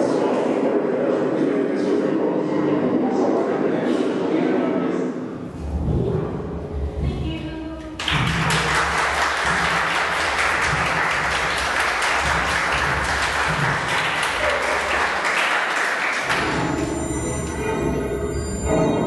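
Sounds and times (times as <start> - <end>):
audience applauding: 8.0 - 17.6.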